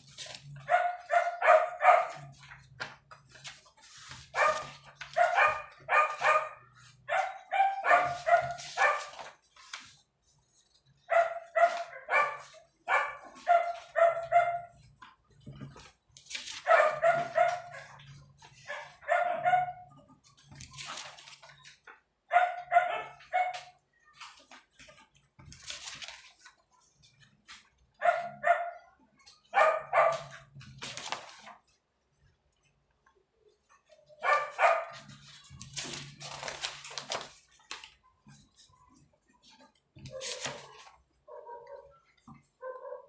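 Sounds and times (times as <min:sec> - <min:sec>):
paper pages rustling: 0:00.0 - 0:19.4, 0:20.1 - 0:22.0, 0:23.1 - 0:28.2, 0:29.2 - 0:32.3, 0:33.6 - 0:42.5
dog barking: 0:00.6 - 0:02.4, 0:04.4 - 0:09.3, 0:11.1 - 0:14.8, 0:16.6 - 0:20.0, 0:22.3 - 0:23.8, 0:28.0 - 0:30.5, 0:34.1 - 0:35.1, 0:40.1 - 0:42.0, 0:42.6 - 0:43.0.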